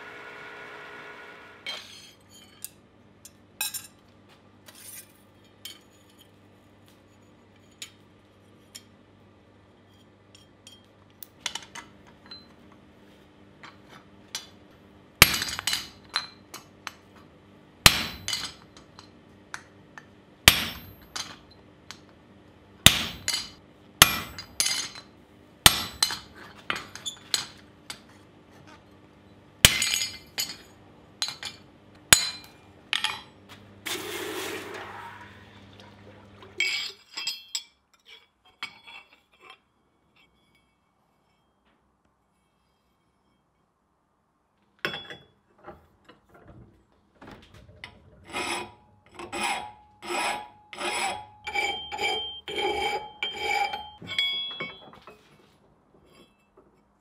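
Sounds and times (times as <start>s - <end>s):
hammer striking chisel on steel: 22.9s - 26.8s.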